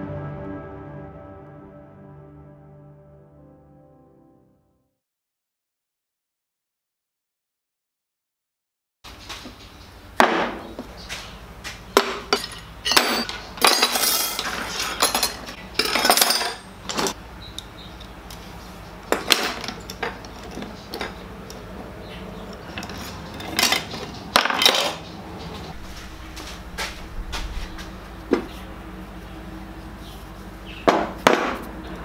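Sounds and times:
metal tools clinking on workbench: 12.3 - 17.2, 19.1 - 21.2, 22.7 - 25.0.

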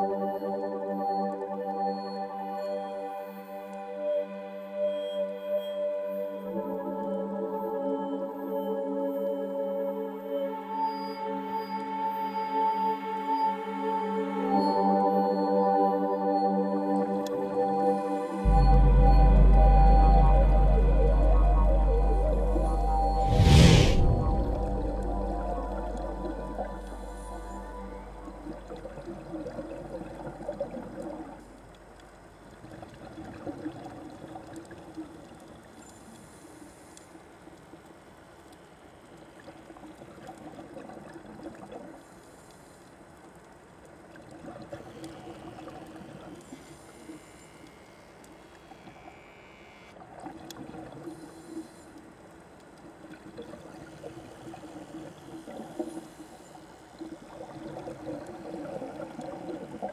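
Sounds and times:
soft watery ambience: 0.0 - 59.9
low steady drone: 16.1 - 32.4.

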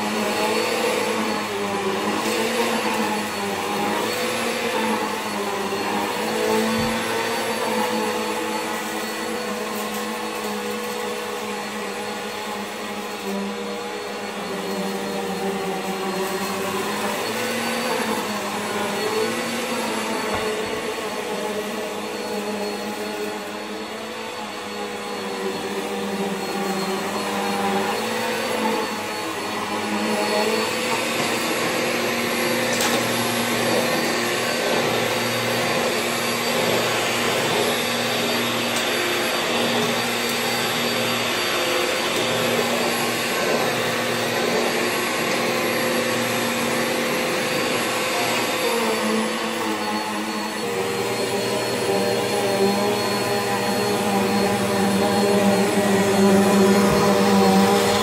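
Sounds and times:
vacuum cleaner motor whine: 0.0 - 58.0.

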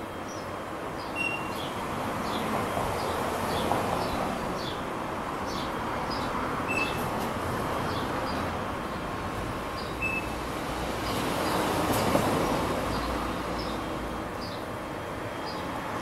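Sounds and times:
traffic rumble: 0.0 - 16.0
small birds chirping: 0.2 - 4.9, 5.5 - 7.1.

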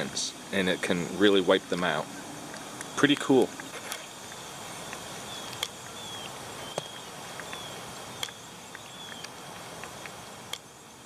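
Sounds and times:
steady hiss: 0.0 - 11.0
sharp clicks: 2.5 - 6.0, 6.7 - 10.7
faint high chirps: 4.2 - 9.6.

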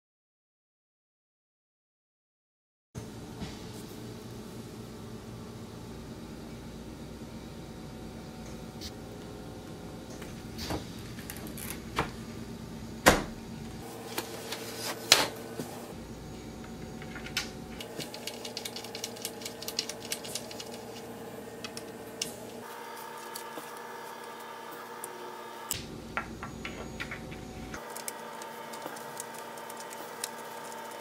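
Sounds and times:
wooden parts knocking together: 26.2 - 27.5.

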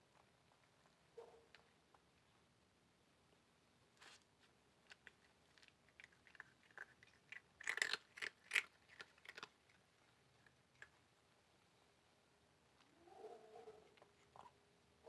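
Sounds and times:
cat crunching flatbread: 4.0 - 11.2.

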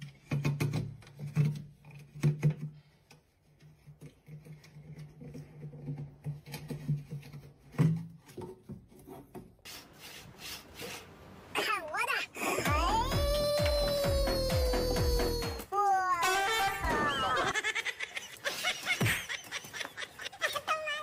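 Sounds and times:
cat rubbing against hose: 9.6 - 11.3.

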